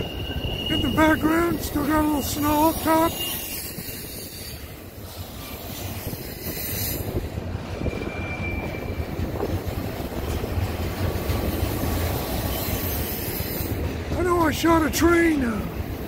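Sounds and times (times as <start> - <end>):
faint high wheel squeal: 0.0 - 9.4
freight train wheels rumbling on rails: 0.0 - 16.0.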